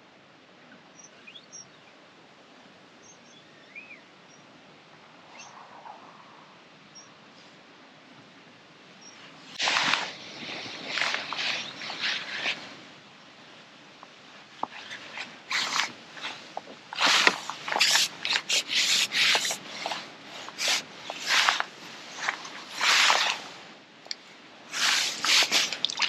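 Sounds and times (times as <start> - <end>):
rustling of waterproof clothing: 9.1 - 26.0.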